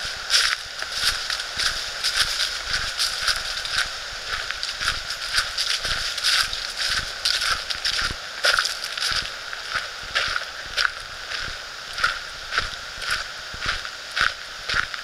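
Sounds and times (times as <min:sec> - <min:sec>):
footsteps crunching dry leaves: 0:00.0 - 0:15.0.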